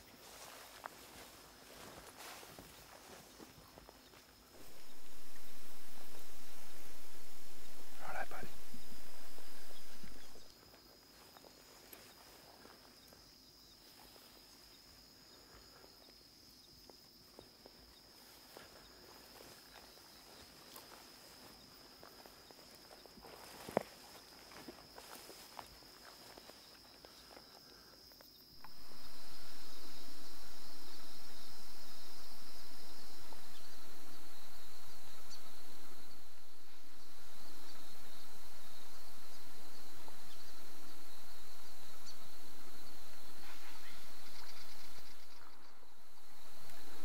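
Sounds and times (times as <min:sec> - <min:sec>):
soft ticks and crackles: 0:00.0 - 0:31.4
high-pitched insect drone: 0:04.4 - 0:16.7, 0:18.2 - 0:47.0
steady low rumble: 0:04.6 - 0:10.5, 0:28.6 - 0:47.0.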